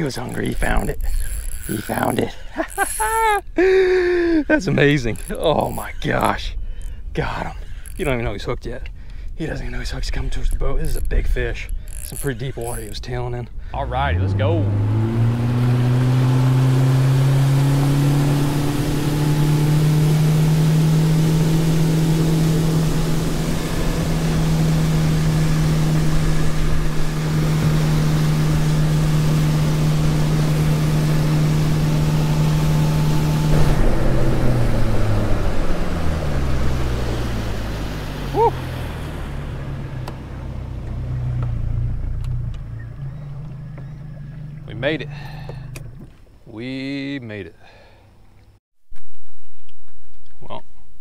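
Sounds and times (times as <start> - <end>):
outboard motor running: 0.0 - 46.2
wind and water rushing: 13.8 - 40.7.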